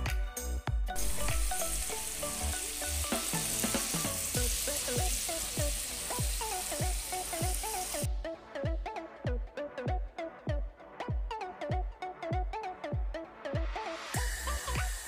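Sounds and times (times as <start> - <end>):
background music with a beat: 0.0 - 15.0
meat sizzling in a wok: 1.0 - 8.1, 14.2 - 15.0.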